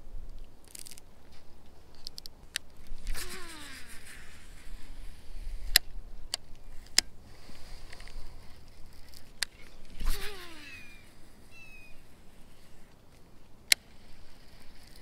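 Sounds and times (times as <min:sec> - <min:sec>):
fishing reel whirring: 0:03.1 - 0:04.5, 0:09.0 - 0:12.6
fishing reel clicks: 0:09.0 - 0:12.0
reel spool whine: 0:09.6 - 0:12.7.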